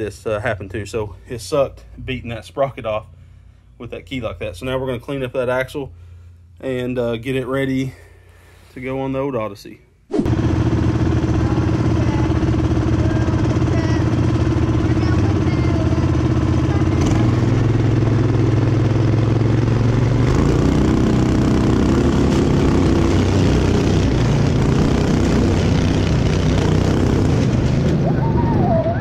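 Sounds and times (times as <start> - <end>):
go-kart engine: 10.2 - 29.0.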